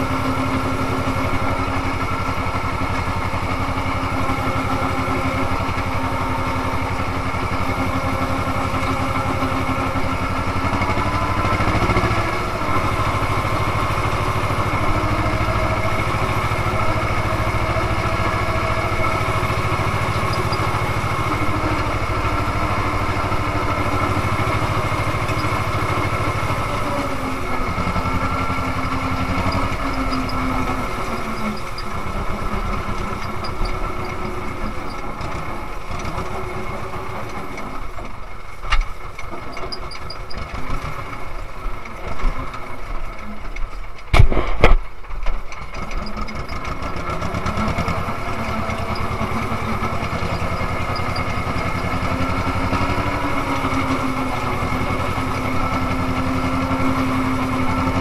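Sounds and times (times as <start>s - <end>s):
tractor diesel engine running: 0.0s - 58.0s
cab rattle: 0.2s - 58.0s
sharp knock: 44.1s - 44.8s.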